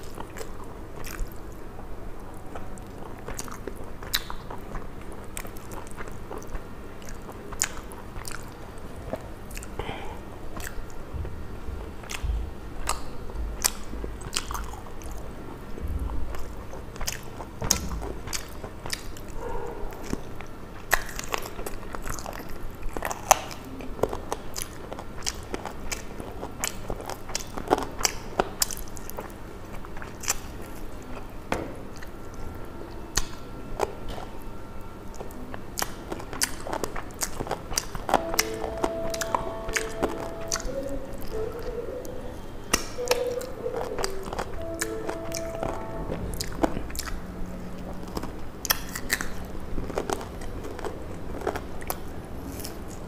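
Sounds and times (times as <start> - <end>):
person chewing: 0.0 - 53.0
wet mouth clicks and smacks: 3.3 - 8.6.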